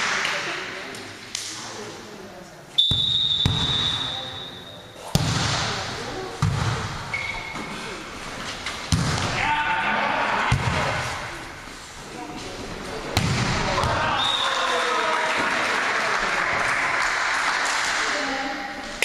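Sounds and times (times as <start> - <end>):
referee's whistle: 2.8 - 5.1, 7.1 - 7.6, 14.1 - 14.6.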